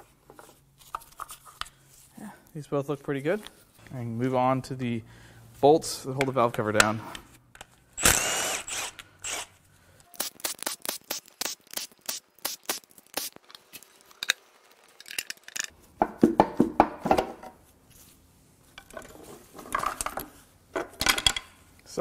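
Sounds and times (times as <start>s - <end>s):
tools clinking and knocking on metal: 19.7s - 21.6s.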